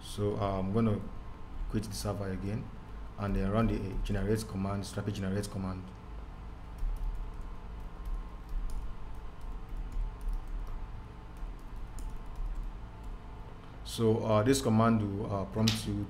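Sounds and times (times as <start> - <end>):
low steady hum: 0.0 - 16.0
keyboard typing: 6.8 - 13.2.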